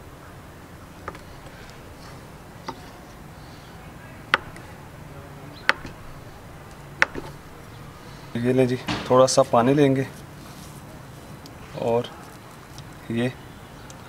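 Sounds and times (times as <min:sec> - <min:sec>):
knife cutting cheese: 0:01.0 - 0:04.8, 0:07.0 - 0:07.4.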